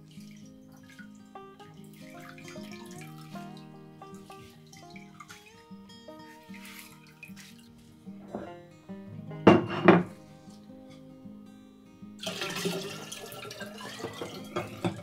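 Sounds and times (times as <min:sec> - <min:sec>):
liquid pouring into a jar: 0:00.0 - 0:05.6, 0:12.2 - 0:15.0
background music: 0:00.0 - 0:15.0.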